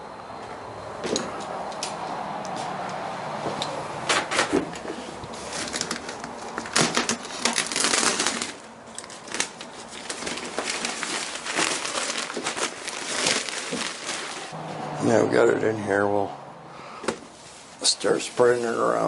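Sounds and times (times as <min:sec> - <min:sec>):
plastic bag crinkling: 0:05.4 - 0:14.6.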